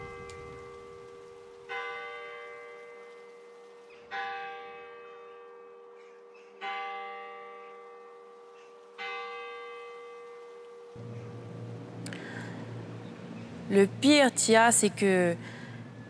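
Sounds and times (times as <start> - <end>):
bell tolling slowly: 0.0 - 16.0.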